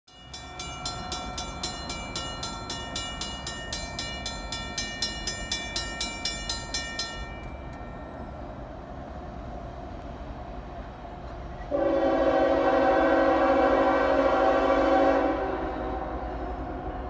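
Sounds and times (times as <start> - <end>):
crossing warning bell ringing: 0.1 - 8.9.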